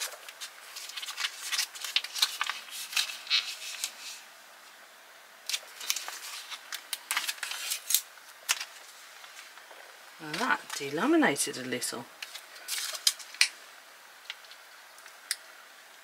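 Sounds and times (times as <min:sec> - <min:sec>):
foil pouch tearing and crinkling: 0:00.0 - 0:04.0, 0:05.5 - 0:08.8, 0:12.2 - 0:13.5.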